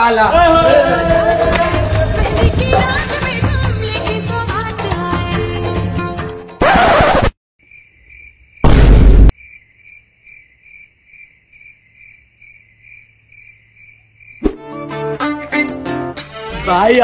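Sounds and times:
cricket chirping: 0:07.6 - 0:14.6
loud boom: 0:08.6 - 0:09.3.

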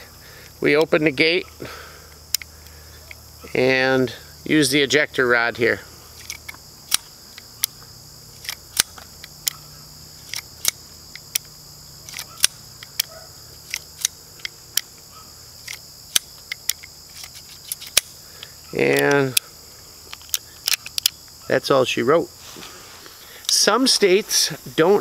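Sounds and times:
insects chirring: 0:00.0 - 0:25.0
revolver metallic clicks: 0:00.7 - 0:03.2, 0:06.2 - 0:19.5, 0:20.1 - 0:21.4.

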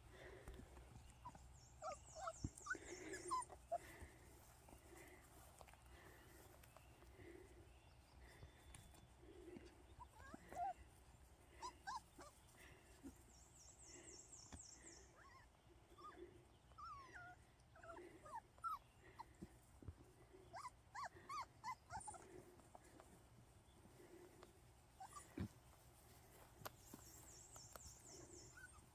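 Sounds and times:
puppies whimpering and yipping: 0:00.2 - 0:05.2, 0:08.2 - 0:13.3, 0:14.8 - 0:19.5, 0:20.3 - 0:23.1, 0:24.9 - 0:28.9.

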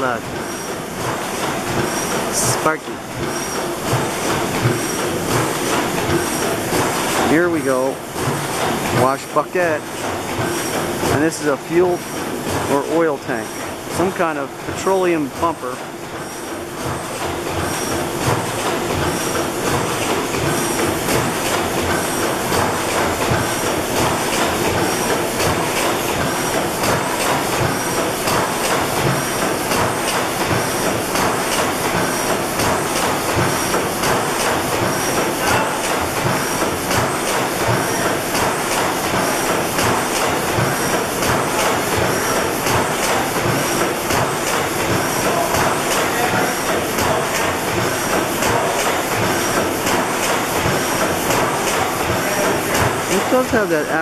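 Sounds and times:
stationary gas engines clattering: 0:00.0 - 0:54.0.

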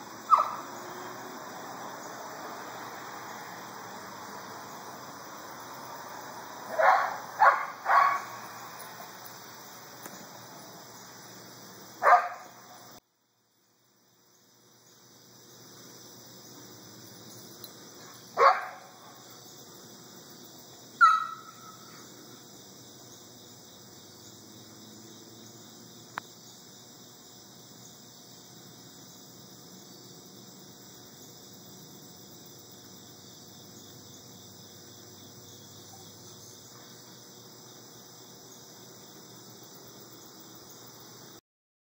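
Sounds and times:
crickets chirping: 0:00.0 - 0:41.4
dog barks: 0:00.3 - 0:00.7, 0:06.7 - 0:08.4, 0:12.0 - 0:12.5, 0:18.4 - 0:18.9, 0:21.0 - 0:21.8.

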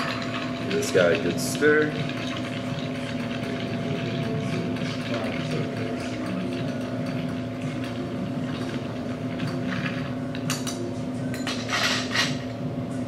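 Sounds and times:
steady background hum: 0:00.0 - 0:13.0
ice and spoon clinking in glass: 0:10.4 - 0:12.4.

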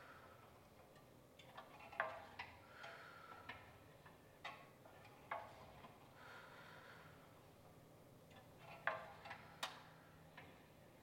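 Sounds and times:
exercise machine clicks and ticks: 0:00.1 - 0:06.2, 0:08.3 - 0:10.7.

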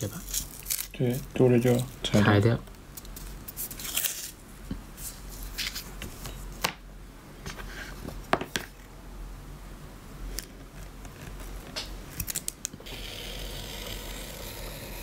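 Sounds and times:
masking tape rustling: 0:00.0 - 0:02.1.

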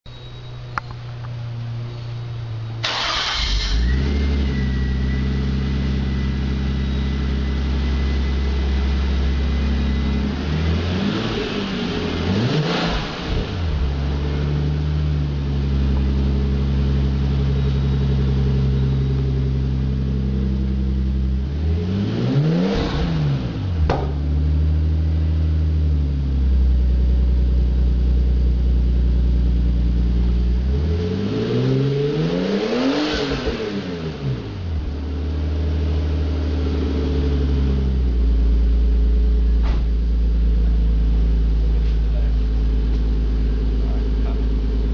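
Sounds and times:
car engine starting and idling: 0:00.1 - 0:44.9
engine revving: 0:02.8 - 0:25.8, 0:30.1 - 0:38.5.

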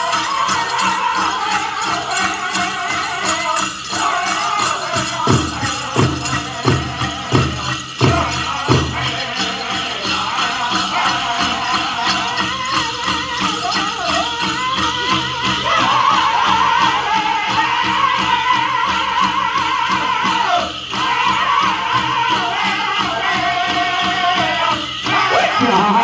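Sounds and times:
bells jingling: 0:00.0 - 0:26.0
high-pitched group singing: 0:00.0 - 0:26.0
steady drumbeat: 0:00.6 - 0:18.8, 0:21.0 - 0:26.0
heavier louder drumbeats: 0:04.6 - 0:09.4.

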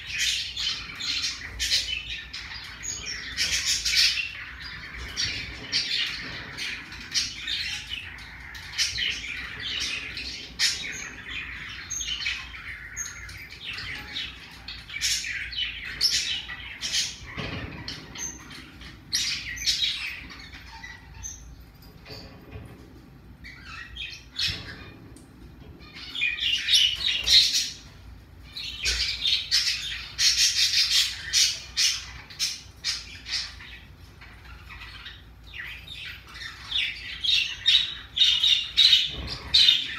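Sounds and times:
parrotlet chirping and squawking: 0:00.0 - 0:22.6, 0:23.3 - 0:39.9.

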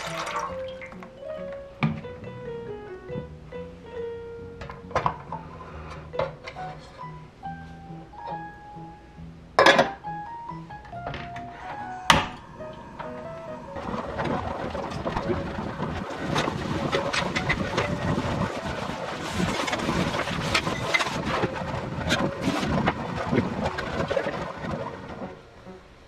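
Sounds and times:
gas burner flame rushing: 0:11.5 - 0:25.8
liquid bubbling with pops: 0:13.8 - 0:25.4.

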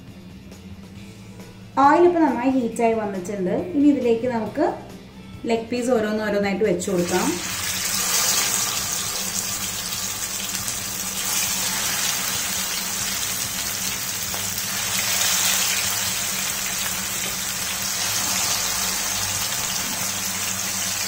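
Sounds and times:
chicken sizzling in hot oil: 0:07.0 - 0:21.0.

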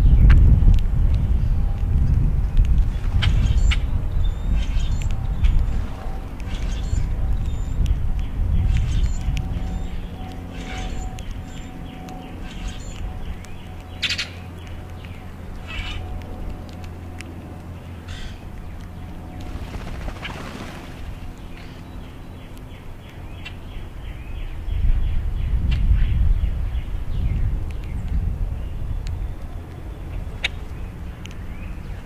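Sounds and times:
steady low rumble: 0:00.0 - 0:32.0
grackles calling: 0:15.6 - 0:16.0, 0:18.1 - 0:18.4.

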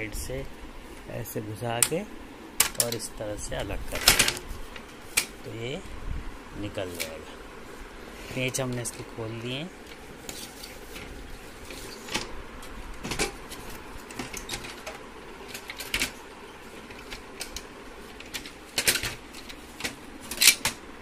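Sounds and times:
printer parts clicking and knocking: 0:03.9 - 0:04.4, 0:14.1 - 0:16.2, 0:16.8 - 0:20.8.

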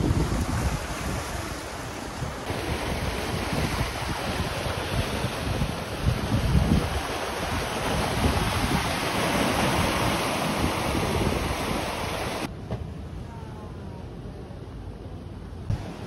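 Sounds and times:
waves washing over rocks: 0:00.0 - 0:12.5
wind buffeting microphone: 0:00.0 - 0:12.5.

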